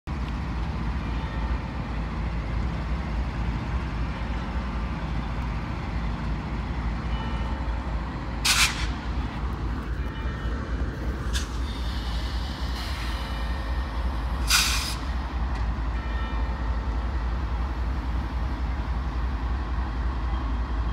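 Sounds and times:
diesel locomotives rumbling: 0:00.1 - 0:20.9
hissing bursts: 0:14.4 - 0:15.1.

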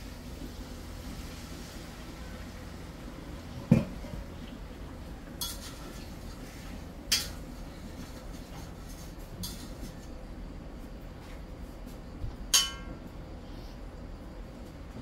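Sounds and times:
dull knock of cookware: 0:03.7 - 0:04.0
spoon clinking on frying pan: 0:12.5 - 0:12.9.

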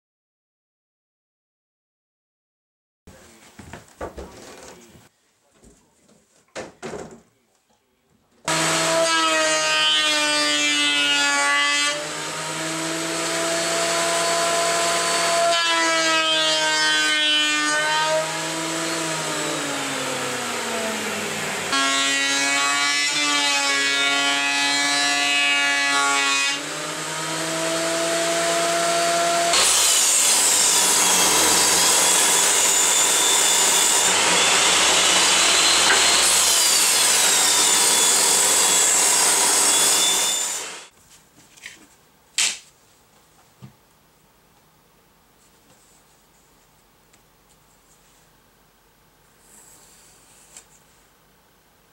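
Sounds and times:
table saw cutting wood: 0:08.5 - 0:40.9
thickness planer motor whine: 0:18.1 - 0:23.2, 0:26.6 - 0:40.9.

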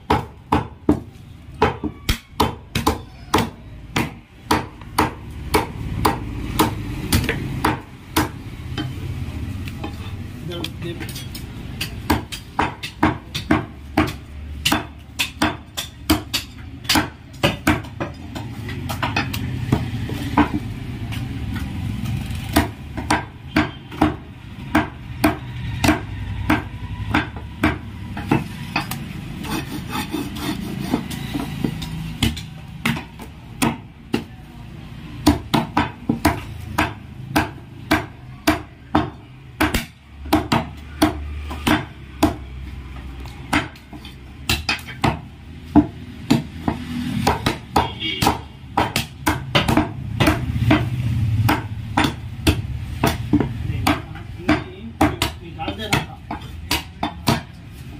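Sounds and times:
cleaver chopping meat on wood: 0:00.0 - 0:57.9.

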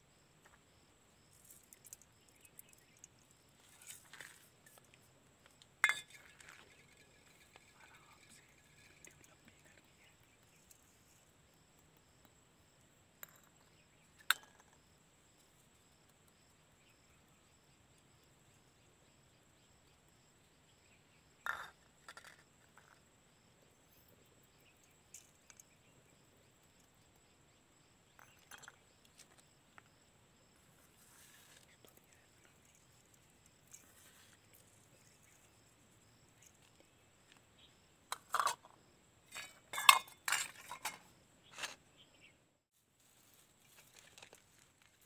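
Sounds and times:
steel bowls clinking on plate: 0:05.8 - 0:08.9, 0:39.3 - 0:41.0.

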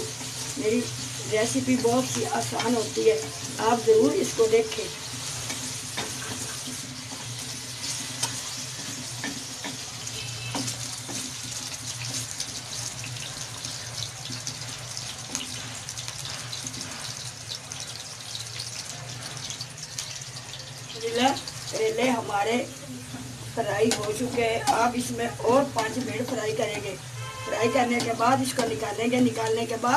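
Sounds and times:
vegetables sizzling in hot oil: 0:00.0 - 0:29.9
wooden spatula stirring: 0:05.3 - 0:17.2.

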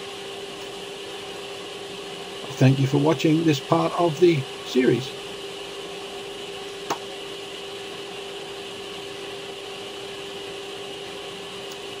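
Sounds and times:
workshop machinery humming: 0:00.0 - 0:12.0.

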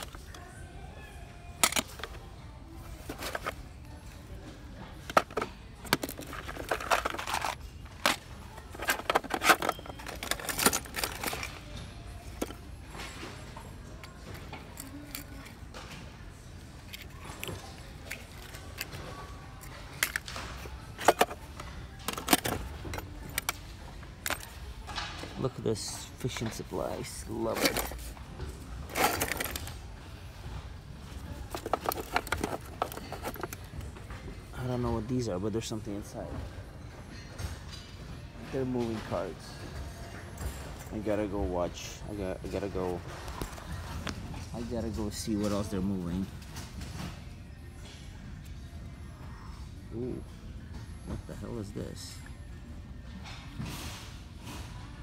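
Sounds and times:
fishing tackle clattering: 0:05.0 - 0:12.6, 0:25.8 - 0:28.2, 0:28.9 - 0:29.8, 0:31.4 - 0:33.8.

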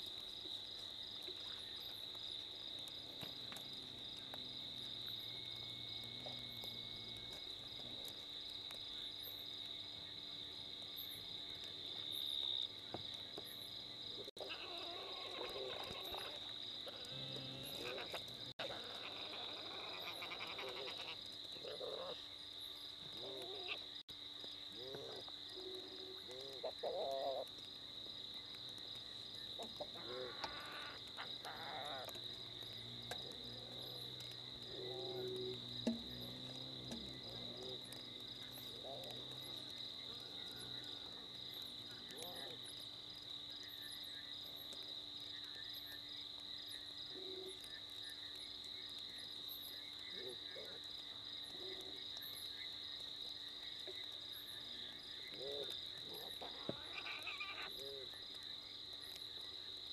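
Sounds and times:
night insects trilling: 0:00.0 - 0:59.9
mongooses wavering cries: 0:14.4 - 0:17.1, 0:17.7 - 0:21.2, 0:29.6 - 0:32.2, 0:56.4 - 0:57.7.

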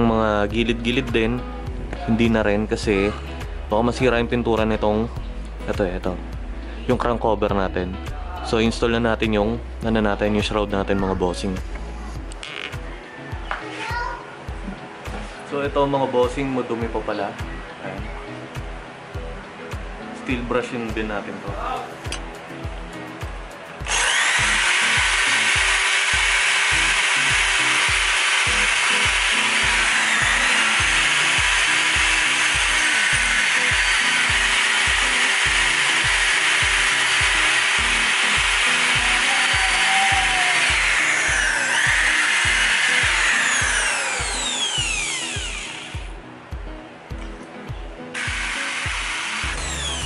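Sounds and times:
background music with low beat: 0:00.0 - 0:50.0
drill wire brush scraping metal: 0:23.9 - 0:45.9.

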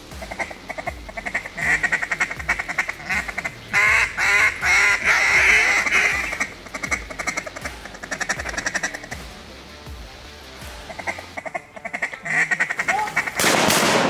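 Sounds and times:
duck call chattering chuckle: 0:00.2 - 0:09.2, 0:10.9 - 0:13.4
duck call loud quacks: 0:00.2 - 0:09.2, 0:10.9 - 0:13.5.

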